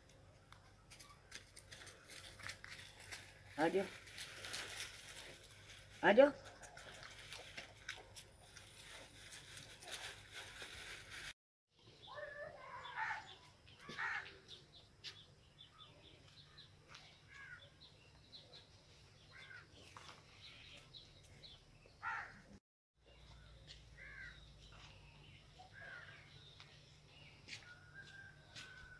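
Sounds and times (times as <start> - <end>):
crackly rustling: 0.0 - 11.4
birds chirping: 11.8 - 28.9
distant crows cawing: 12.5 - 14.5, 17.3 - 17.7, 19.3 - 19.7, 22.0 - 22.5, 24.0 - 24.4.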